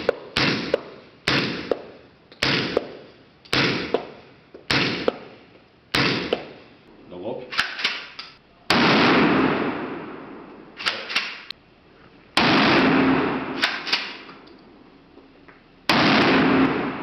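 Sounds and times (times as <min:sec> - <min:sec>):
shotgun shots echoing: 0:00.0 - 0:06.6, 0:07.5 - 0:11.5, 0:12.4 - 0:14.4, 0:15.9 - 0:17.0
shotgun pump clack: 0:07.6 - 0:08.4, 0:13.6 - 0:14.5.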